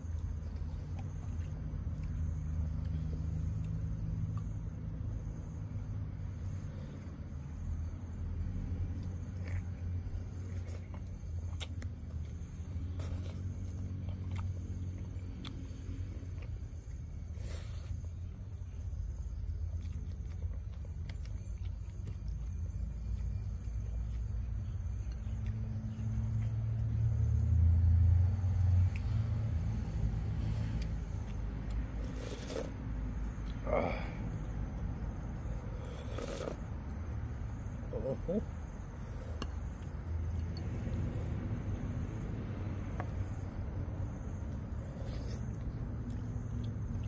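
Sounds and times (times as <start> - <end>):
chewing and smacking: 0.0 - 4.9, 6.5 - 27.4, 35.8 - 43.6, 44.2 - 47.0
low steady rumble: 0.0 - 47.0
person slurping soup: 32.0 - 32.8, 35.8 - 36.7.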